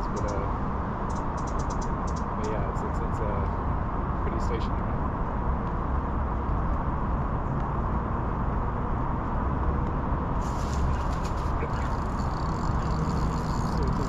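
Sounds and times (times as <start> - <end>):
fishing rod swishing rustle: 10.4 - 13.0.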